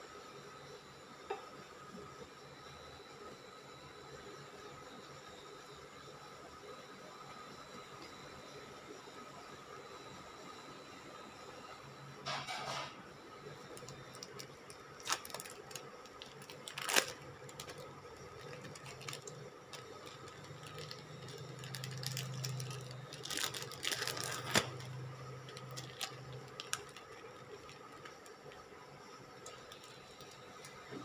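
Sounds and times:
induction cooktop hum: 0.0 - 31.0
plastic wrapper crinkling: 13.7 - 28.6, 29.4 - 30.7.

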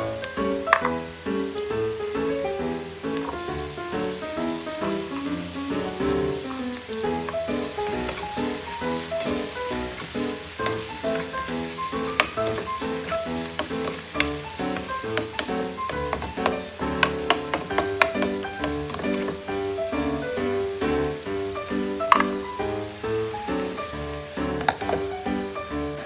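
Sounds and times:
background music: 0.0 - 26.0
vegetables sizzling in oil: 0.0 - 26.0
spatula tapping and scraping pan: 0.6 - 1.0, 3.2 - 3.6, 7.2 - 20.2, 21.9 - 22.5, 24.6 - 25.1.

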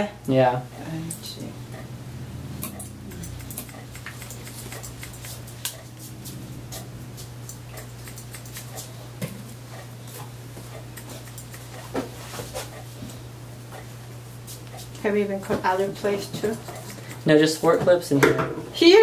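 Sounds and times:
steady low hum: 0.0 - 19.0
scissors snipping hair: 2.6 - 9.0, 10.7 - 11.9.

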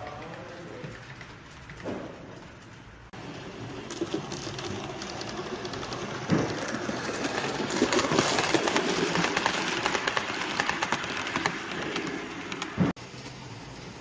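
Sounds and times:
wheels clicking over rail joints: 0.0 - 14.0
model train running noise: 3.1 - 14.0.

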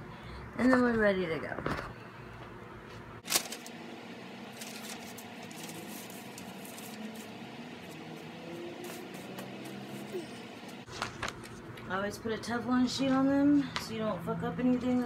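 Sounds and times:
fabric and paper rustling: 3.2 - 3.8, 4.5 - 10.2, 10.8 - 11.6.

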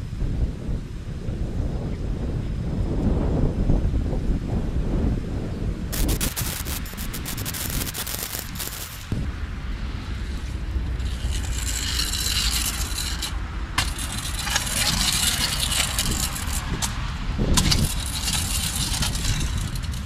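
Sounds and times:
skateboard wheels rolling on concrete: 5.9 - 20.0.

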